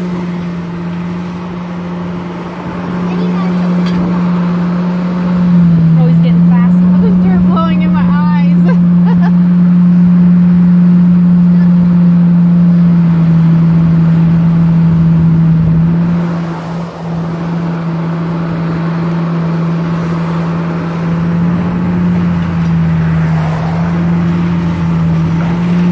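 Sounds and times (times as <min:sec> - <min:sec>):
excavator diesel engine drone: 0:00.0 - 0:25.9
pickup truck passing: 0:00.0 - 0:25.9.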